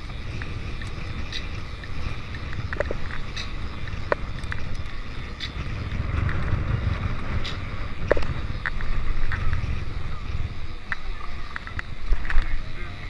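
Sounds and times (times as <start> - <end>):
bike clicks and rattles: 0.0 - 13.0
wind rumbling over microphone: 0.0 - 13.0.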